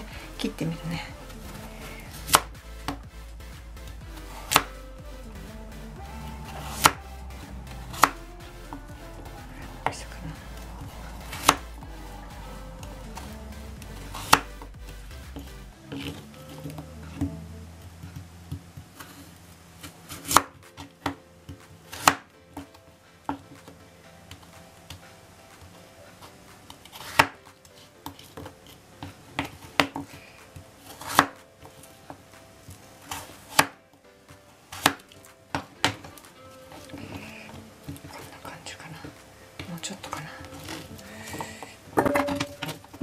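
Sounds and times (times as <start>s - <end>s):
knife chopping on cutting board: 11.3s - 11.6s.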